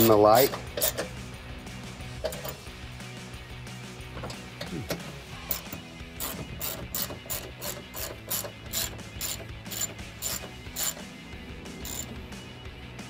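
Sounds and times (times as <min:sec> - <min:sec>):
hand ratchet clicking: 0:00.7 - 0:01.2, 0:02.2 - 0:02.6, 0:04.2 - 0:11.1, 0:11.8 - 0:12.1.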